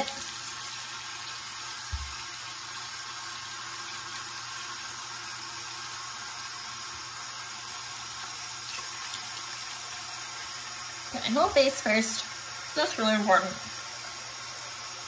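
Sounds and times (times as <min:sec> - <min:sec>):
tap water running: 0:00.0 - 0:15.0.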